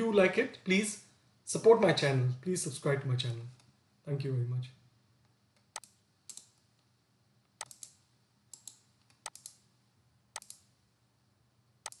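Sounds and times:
faint computer mouse clicks: 5.6s - 6.5s, 7.6s - 9.6s, 10.4s - 10.7s.

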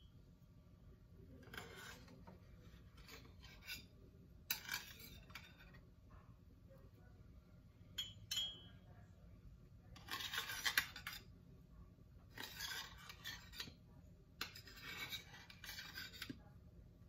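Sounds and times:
metal spoon scraping steel plate: 1.3s - 5.8s, 10.0s - 11.3s, 12.3s - 13.8s, 14.4s - 16.4s.

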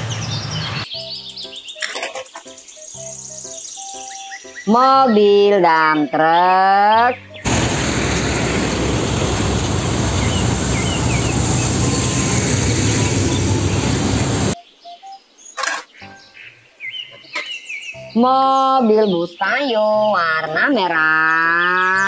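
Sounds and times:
birds chirping: 0.0s - 22.0s
dump trucks driving past: 7.4s - 14.6s.

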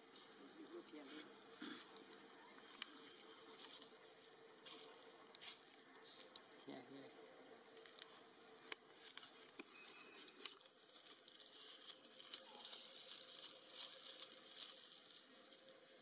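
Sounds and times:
soft high hiss: 0.0s - 16.0s
small clicks and rustles: 8.7s - 15.2s.

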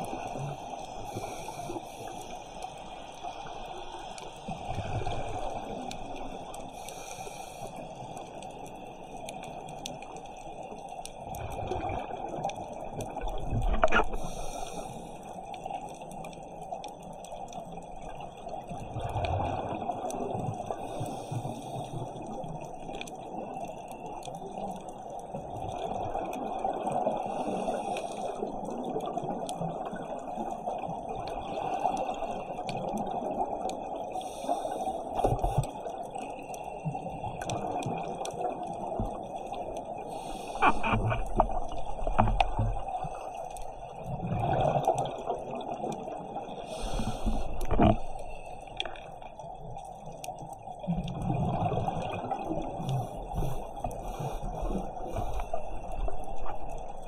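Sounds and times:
muffled underwater hiss: 0.0s - 57.0s
scuba regulator bubbling: 25.2s - 57.0s.

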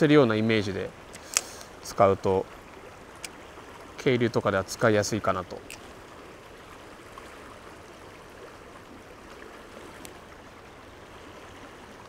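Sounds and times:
stream water flowing: 0.0s - 12.0s.

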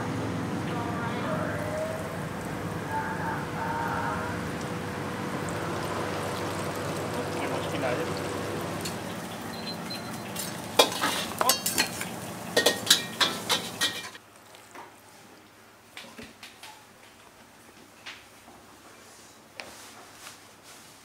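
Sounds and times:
oil sizzling in a wok: 4.4s - 14.2s
metal utensil clinking in wok: 10.2s - 14.2s.

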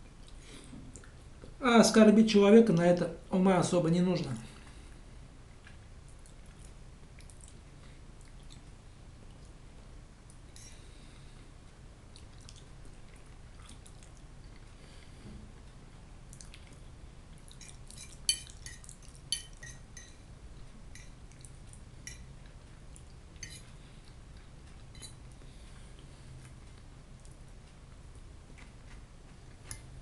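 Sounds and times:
chewing: 5.5s - 9.6s, 12.1s - 19.3s.

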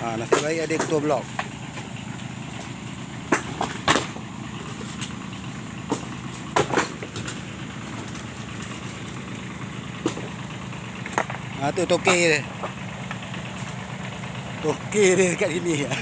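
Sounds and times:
lorry engine idling: 0.0s - 16.0s.

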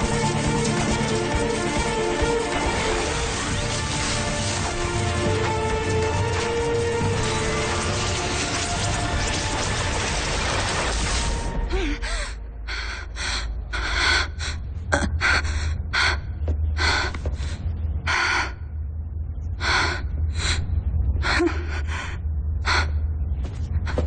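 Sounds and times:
woman panting: 11.7s - 18.5s.

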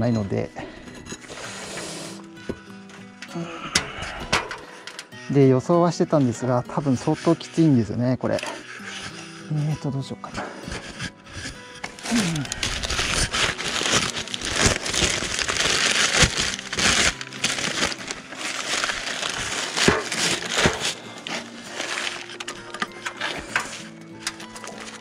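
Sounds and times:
pliers scraping a metal fitting: 10.5s - 12.1s.

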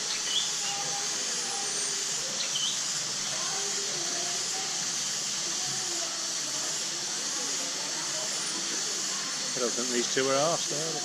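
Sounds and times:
bird chirp: 0.0s - 3.4s
faint distant voices: 0.0s - 11.0s
steady high hiss: 0.0s - 11.0s.

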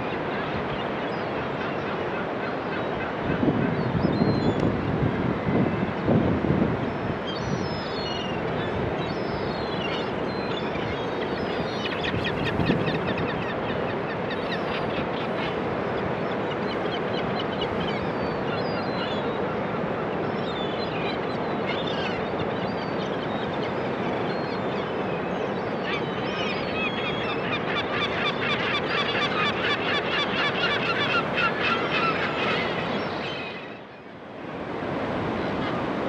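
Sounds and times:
flock of birds calling: 7.4s - 19.5s, 21.8s - 34.1s.

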